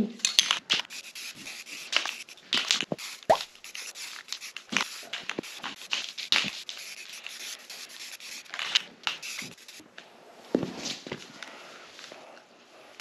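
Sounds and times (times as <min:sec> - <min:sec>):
spray paint can hissing: 0:00.6 - 0:09.8
footsteps scuffing on plastic sheet: 0:04.2 - 0:06.9.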